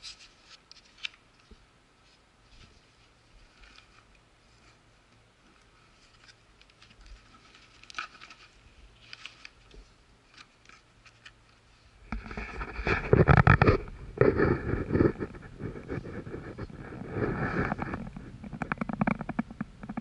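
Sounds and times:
faint clicks and scrapes: 0:00.0 - 0:20.0
loud rustling and rubbing: 0:02.0 - 0:20.0.

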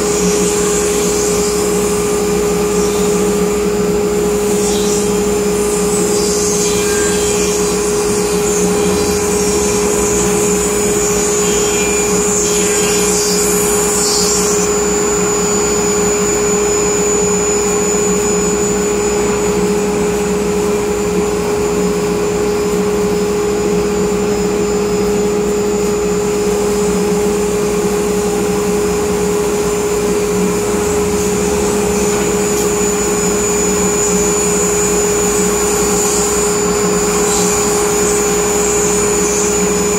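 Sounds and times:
router spindle cutting with whine: 0:00.0 - 0:39.9
dust collector drawing air: 0:26.4 - 0:39.9.

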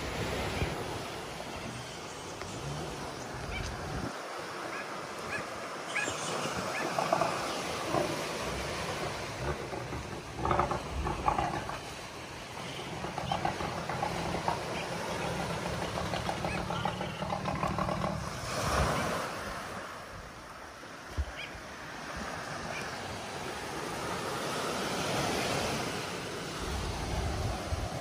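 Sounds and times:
small waves breaking on beach: 0:00.0 - 0:13.2, 0:13.8 - 0:28.0.

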